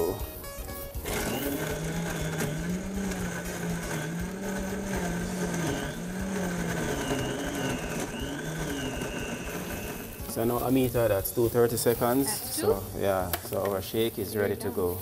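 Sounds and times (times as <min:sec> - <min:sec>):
blender running: 0:00.0 - 0:12.9.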